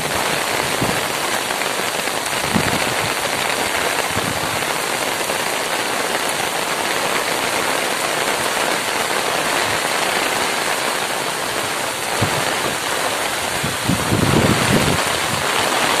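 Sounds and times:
heavy rain on trees: 0.0s - 16.0s.

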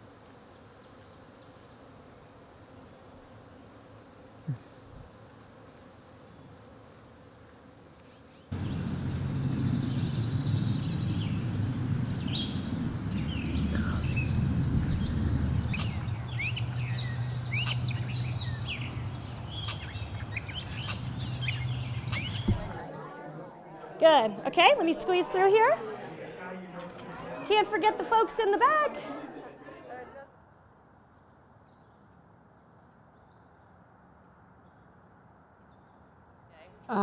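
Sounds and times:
bees buzzing: 0.0s - 26.4s
songbirds chirping: 7.8s - 30.0s.

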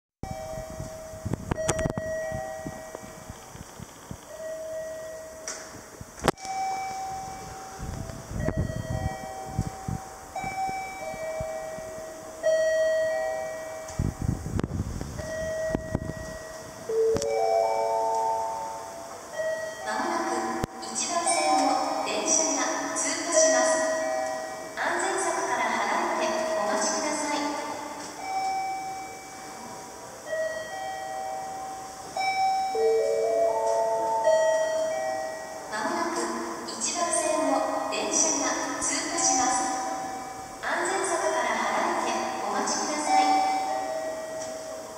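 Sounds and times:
electronic chime melody over speakers: 0.2s - 5.6s, 6.3s - 14.4s, 15.2s - 22.6s, 28.1s - 36.7s
bell-like chime tones: 28.2s - 35.7s.

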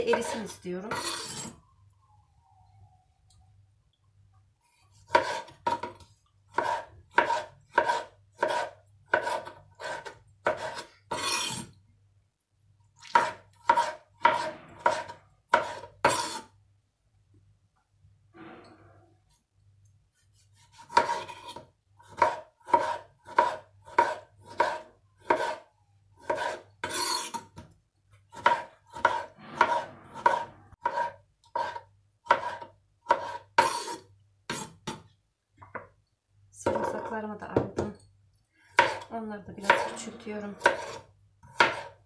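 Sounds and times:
knife scraping stroke: 0.9s - 1.6s, 6.5s - 11.7s, 13.2s - 16.5s, 28.4s - 34.8s.

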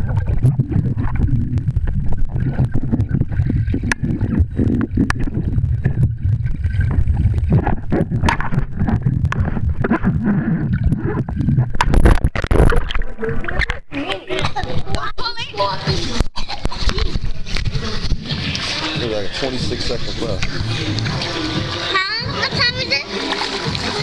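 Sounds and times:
underwater gurgling: 0.0s - 24.0s
underwater rumble: 0.0s - 24.0s
rush of water: 15.7s - 24.0s.

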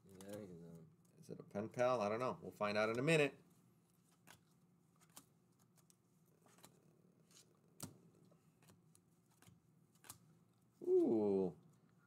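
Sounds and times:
faint low hum: 0.0s - 12.0s
cards clicking and sliding: 4.0s - 10.3s.

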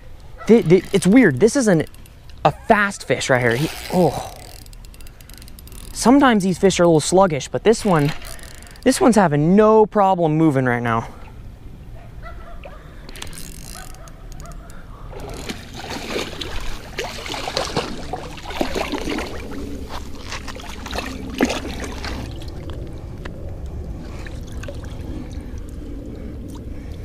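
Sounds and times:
water splashing and sloshing: 4.6s - 9.3s, 12.6s - 27.0s.

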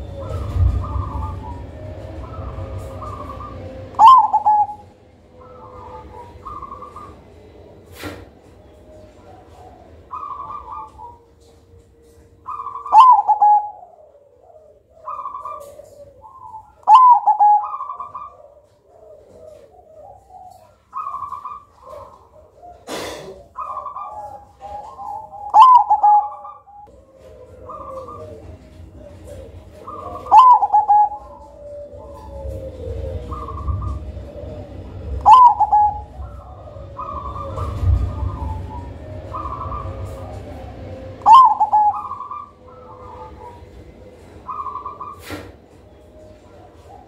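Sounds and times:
dove cooing: 0.0s - 47.0s.

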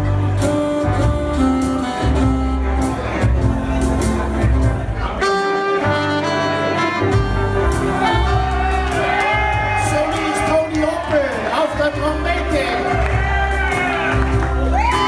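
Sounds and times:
saxophones and trumpet: 0.0s - 11.0s
jazz band playing: 0.0s - 15.0s.

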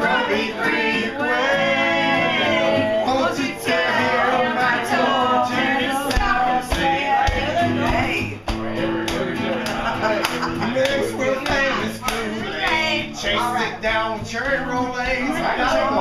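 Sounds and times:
group singing wavering notes: 0.0s - 7.9s.

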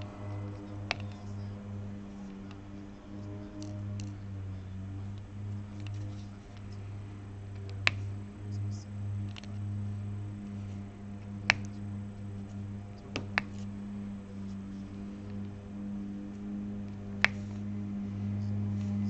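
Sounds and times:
steady low hum: 0.0s - 19.0s
pen clicks on canvas: 17.2s - 17.6s.

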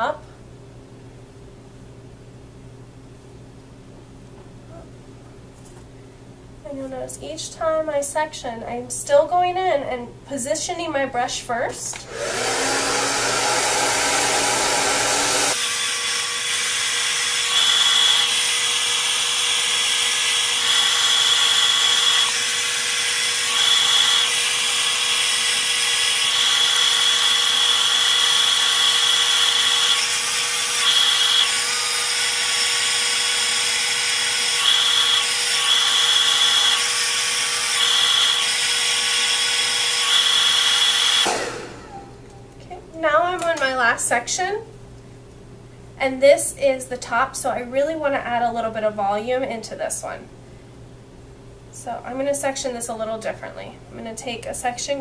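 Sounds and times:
hair dryer blowing: 11.9s - 42.1s.

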